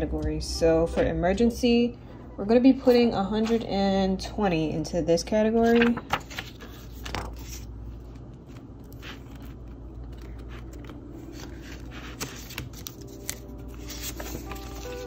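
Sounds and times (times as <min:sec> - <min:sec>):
paper banknotes rustling: 0:05.5 - 0:15.0.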